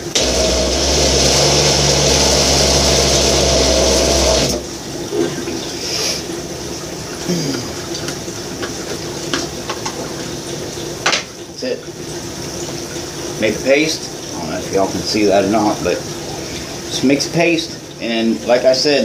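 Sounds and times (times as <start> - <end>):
blender running: 0.0 - 4.8.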